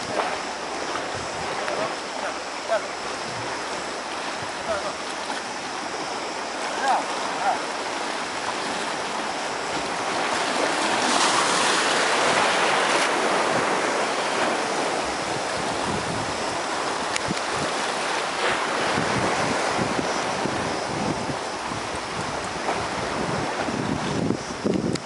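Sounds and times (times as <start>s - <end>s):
waves washing against rocks: 0.0s - 25.0s
wind buffeting microphone: 0.0s - 25.0s.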